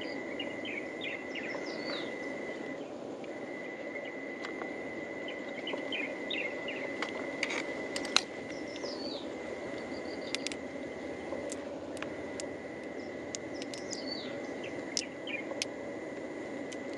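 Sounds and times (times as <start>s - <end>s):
bird chirps: 0.0s - 2.3s, 5.2s - 7.0s, 8.5s - 10.5s, 13.0s - 15.5s
insect high tone: 0.0s - 16.9s
shells and pearls clicking: 11.4s - 14.2s.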